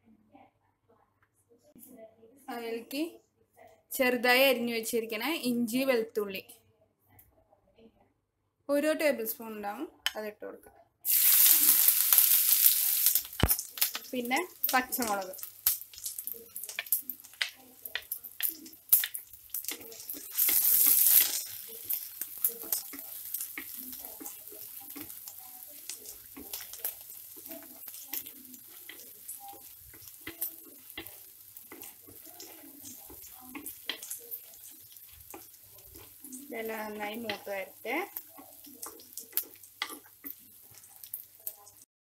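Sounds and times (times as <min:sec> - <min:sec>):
food sizzling in oil: 0:11.1 - 0:41.9
wooden spatula scraping a pot: 0:14.8 - 0:41.8.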